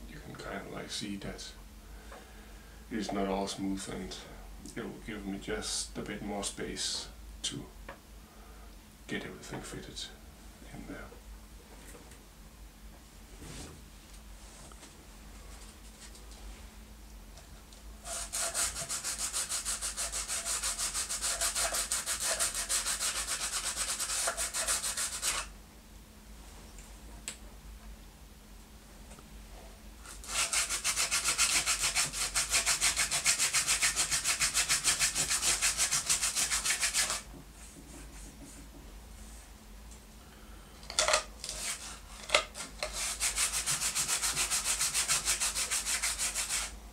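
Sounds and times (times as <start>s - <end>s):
sandpaper rasping on wood: 18.0s - 25.5s, 30.1s - 37.3s, 41.5s - 46.7s.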